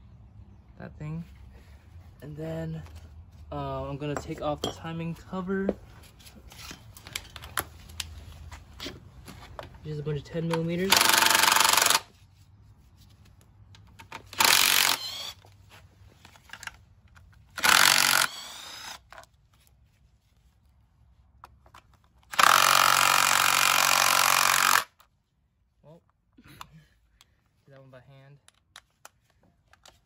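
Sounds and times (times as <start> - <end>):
cordless power tool spinning bolts: 10.8 - 12.1, 14.0 - 15.5, 17.5 - 19.2, 22.3 - 25.0.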